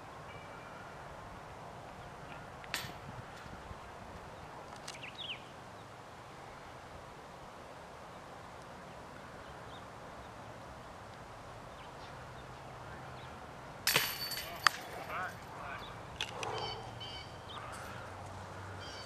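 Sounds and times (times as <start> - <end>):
disc hitting metal basket: 13.9 - 15.1.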